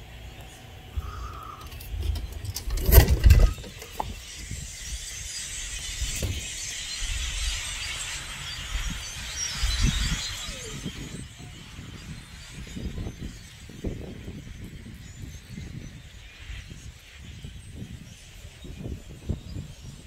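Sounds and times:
flock of birds calling: 0:00.0 - 0:20.0.

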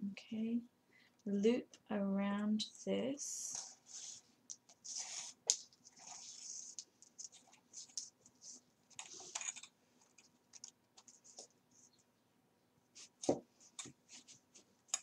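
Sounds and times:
thread scratching and rustling paper: 0:03.5 - 0:12.0.

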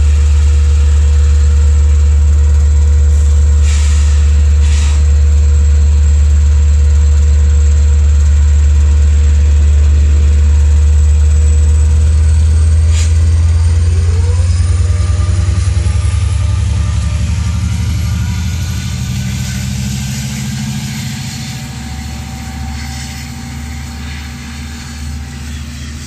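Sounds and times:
diesel locomotive drone: 0:00.0 - 0:26.0
rising whine: 0:00.0 - 0:26.0
short hisses: 0:03.6 - 0:05.1.

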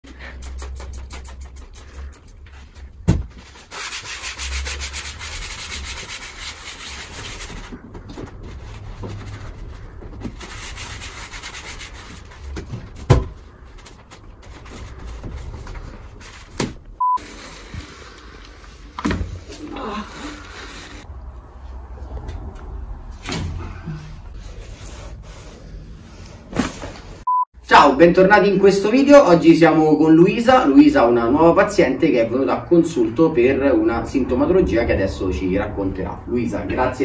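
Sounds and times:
short beep: 0:17.0 - 0:17.2, 0:27.3 - 0:27.5.

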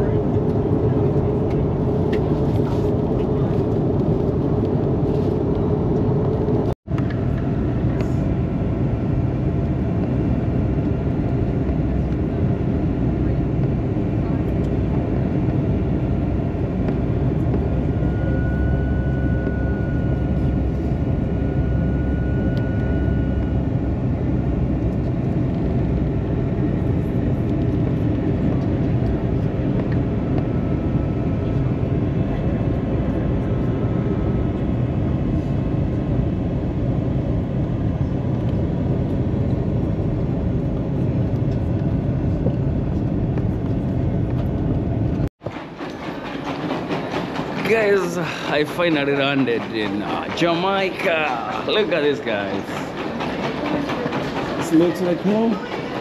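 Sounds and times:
airliner engines and rushing air: 0:00.0 - 0:56.0
faint high whine: 0:16.9 - 0:25.1.

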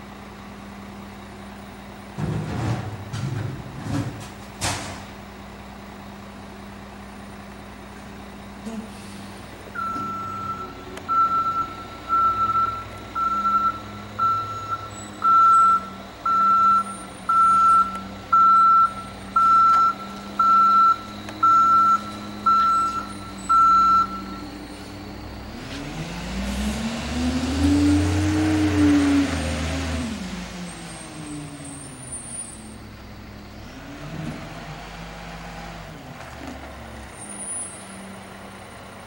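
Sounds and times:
truck engine hum: 0:00.0 - 0:39.0
truck backup alarm beeping: 0:09.7 - 0:25.6.

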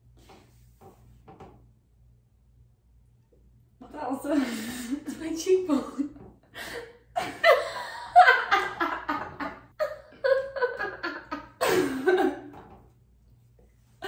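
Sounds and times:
women laughing: 0:06.7 - 0:12.5.

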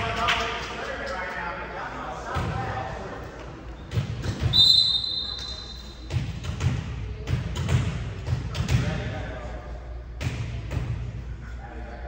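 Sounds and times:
referee's whistle blast: 0:04.5 - 0:05.9
ball bouncing: 0:05.4 - 0:09.1.

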